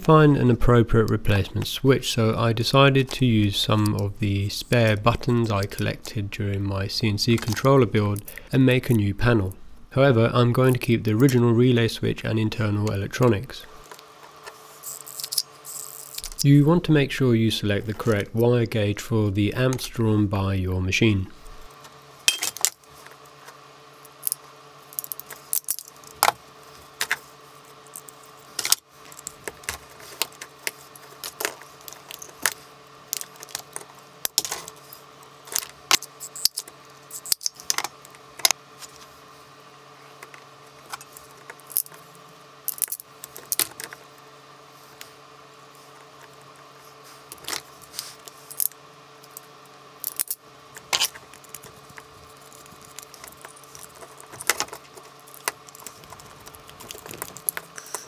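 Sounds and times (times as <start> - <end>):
small parts and tools clinking: 14.8 - 16.5, 22.2 - 22.8, 24.1 - 26.4, 27.8 - 34.8, 35.4 - 38.5, 42.7 - 44.0, 48.4 - 58.0.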